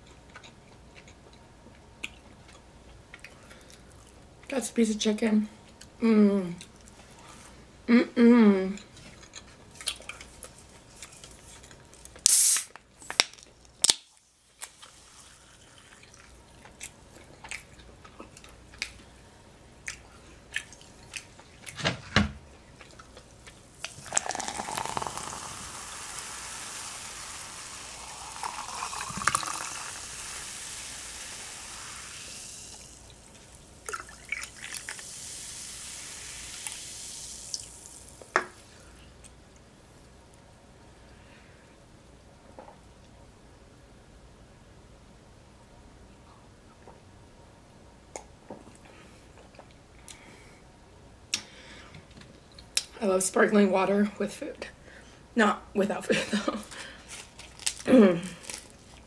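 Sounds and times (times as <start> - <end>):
sparkling water fizzing pour: 23.8 - 38.5.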